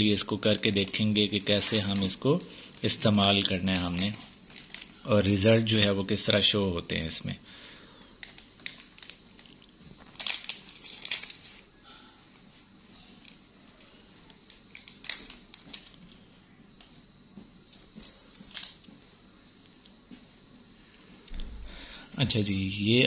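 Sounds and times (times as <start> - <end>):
foil pouch crinkling: 0.0 - 5.1, 8.2 - 11.6, 14.5 - 16.1
faint high-pitched whine: 0.0 - 23.0.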